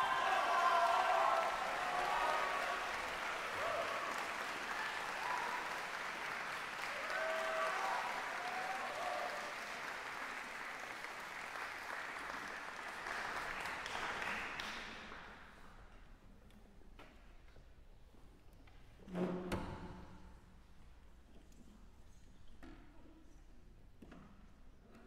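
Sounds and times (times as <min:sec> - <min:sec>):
audience applauding: 0:00.0 - 0:15.5.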